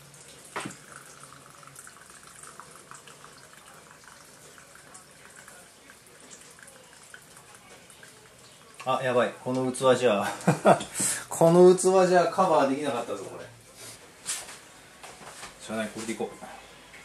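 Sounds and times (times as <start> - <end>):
liquid trickling into glass jar: 0.0 - 9.3.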